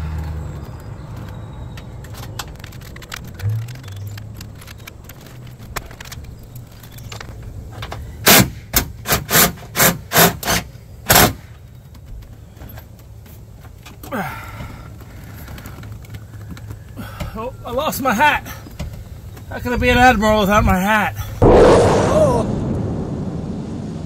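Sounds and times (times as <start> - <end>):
short falling sound: 21.4 - 24.0.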